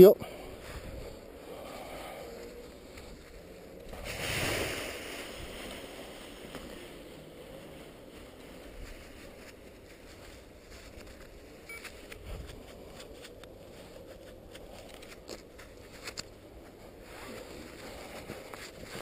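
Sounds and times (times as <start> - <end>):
wind buffeting microphone: 0.5 - 1.5.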